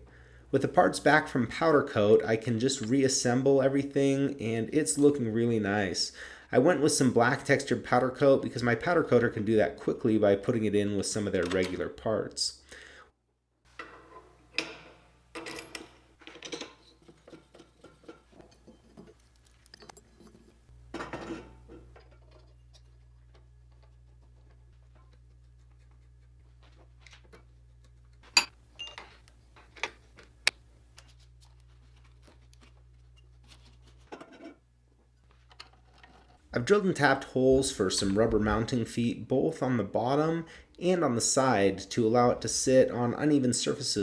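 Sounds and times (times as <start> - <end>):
metal parts clinking and scraping: 13.7 - 24.0, 35.3 - 36.4.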